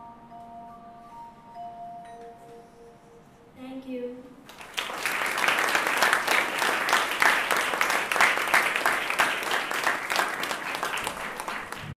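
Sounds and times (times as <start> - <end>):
audience applauding: 4.5 - 11.9.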